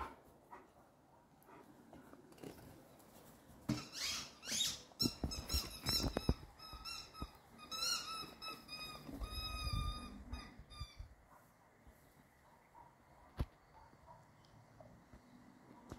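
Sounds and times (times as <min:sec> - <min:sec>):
squeaky rubber toy squeaking: 0:03.8 - 0:11.1.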